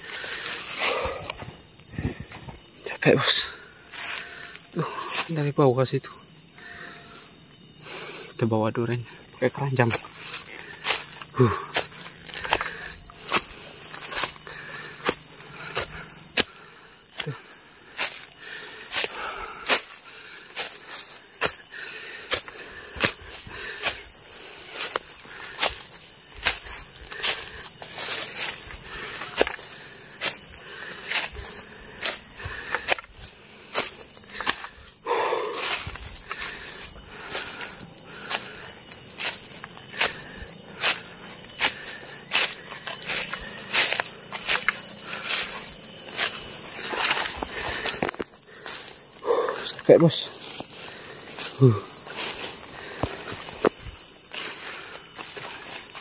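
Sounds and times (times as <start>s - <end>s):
high insect drone: 0.0s - 56.0s
footsteps crunching: 9.2s - 16.4s, 18.9s - 56.0s.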